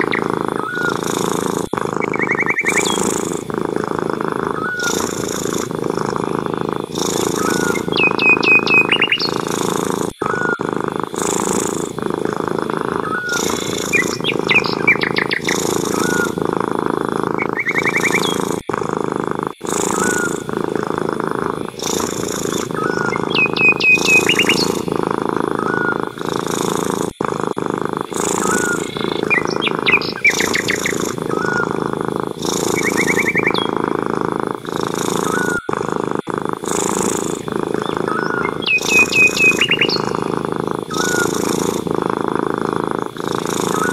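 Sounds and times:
bird chirps and trills: 0.0 - 3.4, 4.5 - 10.6, 11.2 - 16.4, 17.4 - 18.6, 19.6 - 20.6, 21.6 - 26.6, 28.1 - 31.7, 32.4 - 33.9, 36.7 - 41.9
cat purring: 0.0 - 43.9.

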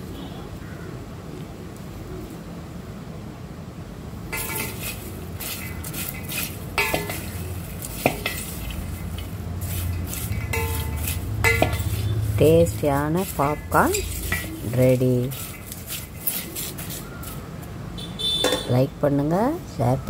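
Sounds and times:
spoon scraping metal pot: 4.4 - 17.4.

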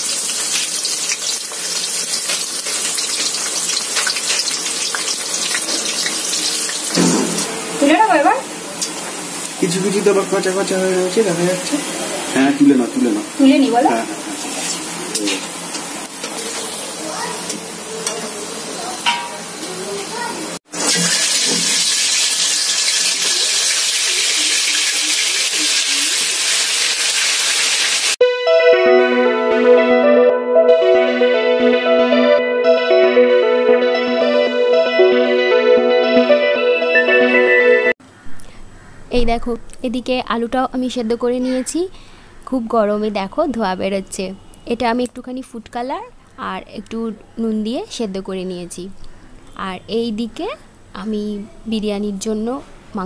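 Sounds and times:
onions sizzling in hot oil: 0.0 - 28.2.

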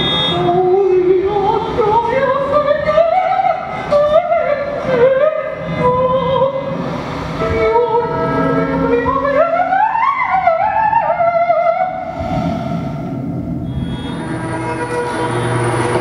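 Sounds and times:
woman singing wordlessly: 0.3 - 6.8, 7.4 - 12.0.

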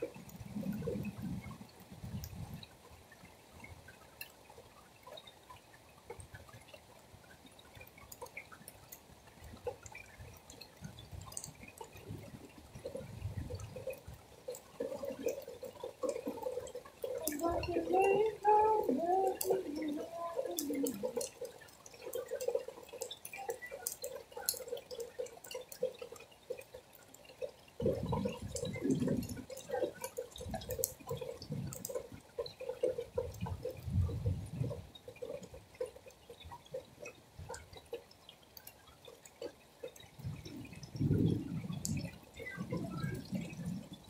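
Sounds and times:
rain dripping: 0.0 - 44.0.

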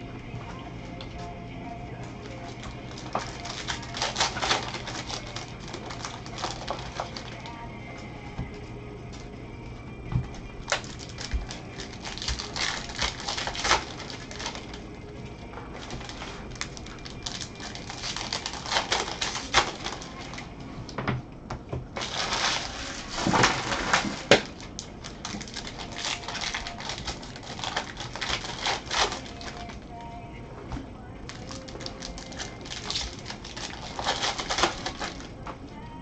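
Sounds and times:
wrappers crinkling and tearing: 2.2 - 7.6, 10.6 - 14.9, 15.7 - 20.5, 22.0 - 29.8, 31.2 - 35.3.

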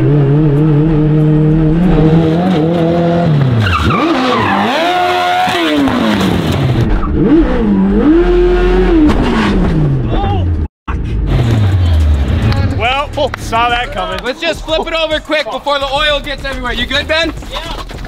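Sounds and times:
motorcycle engine revving high: 0.0 - 10.0
tires squealing: 1.8 - 9.6.

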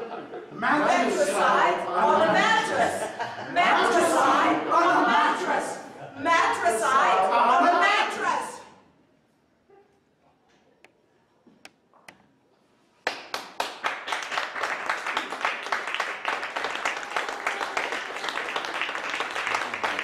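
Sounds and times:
audience applause: 13.1 - 20.0.

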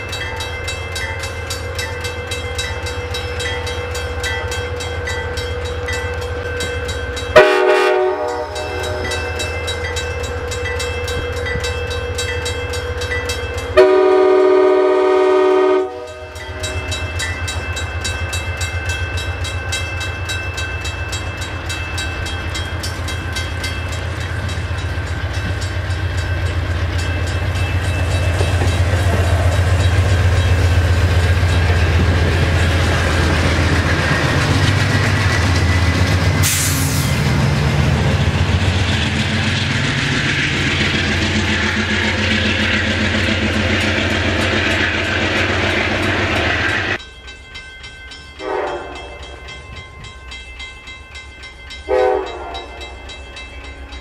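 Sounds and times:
diesel locomotive engine rumble: 0.0 - 50.7
distant train horn blasts: 7.3 - 9.4, 13.8 - 16.7, 48.4 - 49.3, 51.9 - 53.0.

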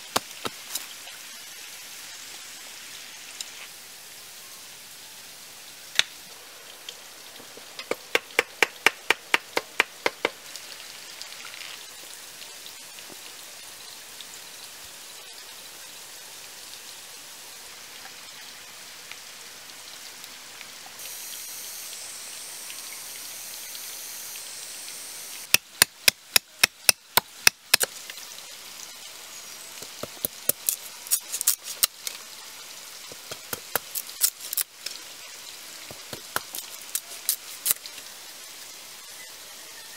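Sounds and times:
steady hiss: 0.0 - 39.9
machete striking bamboo: 25.5 - 27.9.

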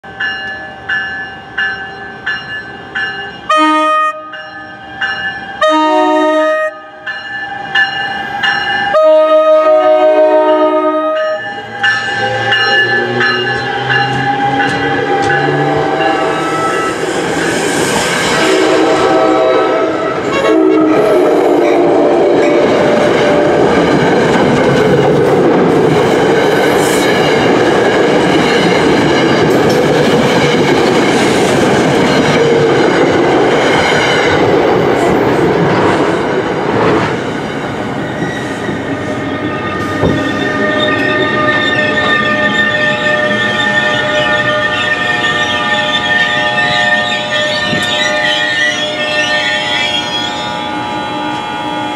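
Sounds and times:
train wheels rumbling and clattering: 11.3 - 48.8.

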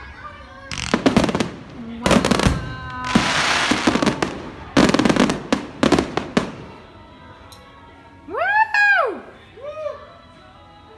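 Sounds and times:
fireworks hissing crackle: 0.7 - 6.8
fireworks bursting with sharp bangs: 0.7 - 6.9.

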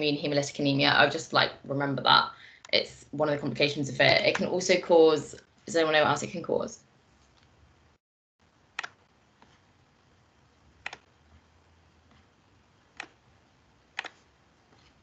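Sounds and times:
low room hiss: 0.0 - 15.0
computer mouse clicks: 8.8 - 9.6, 10.8 - 11.1, 12.9 - 13.2, 13.9 - 14.9.

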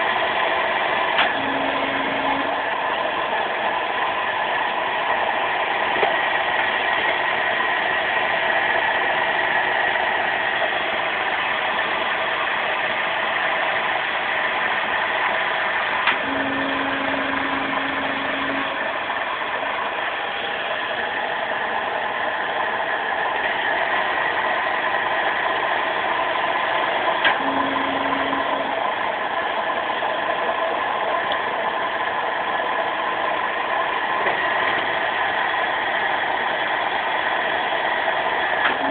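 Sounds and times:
low steady hum: 0.0 - 7.5, 15.9 - 38.9
click: 1.2 - 1.4, 16.0 - 16.2
press mechanical noise: 1.2 - 2.6, 16.1 - 19.0, 27.2 - 28.8.

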